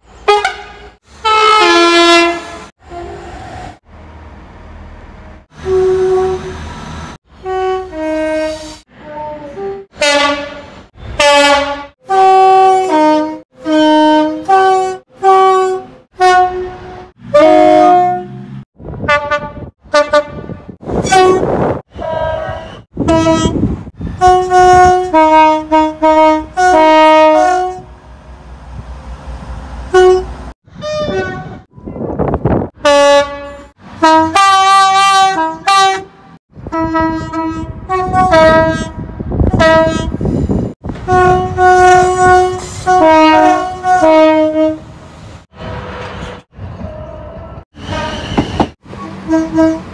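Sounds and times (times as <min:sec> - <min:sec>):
two-note train horn blasts: 0:07.4 - 0:18.5, 0:19.1 - 0:23.6, 0:24.2 - 0:27.9, 0:29.9 - 0:31.6, 0:36.7 - 0:40.2, 0:41.0 - 0:44.9.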